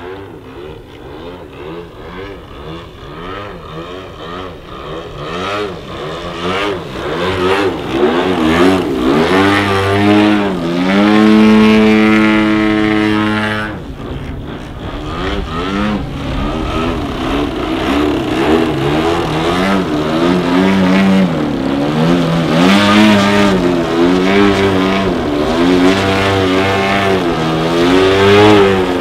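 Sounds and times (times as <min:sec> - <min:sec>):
model plane engine revving: 0:00.0 - 0:29.0.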